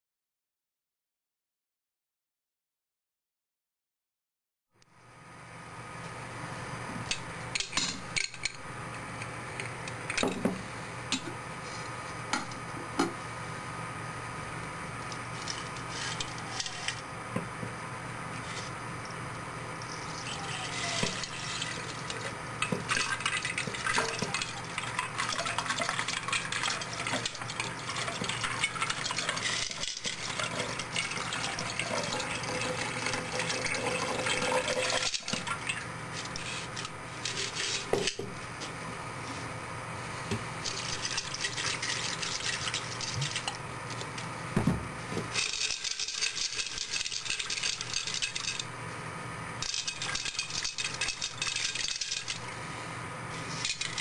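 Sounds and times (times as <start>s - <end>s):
liquid trickling onto ice: 22.9s - 36.4s.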